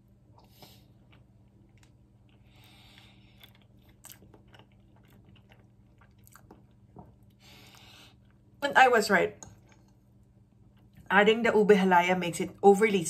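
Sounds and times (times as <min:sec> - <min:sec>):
low steady hum: 0:00.0 - 0:13.0
faint chewing: 0:00.3 - 0:08.5, 0:09.3 - 0:11.1.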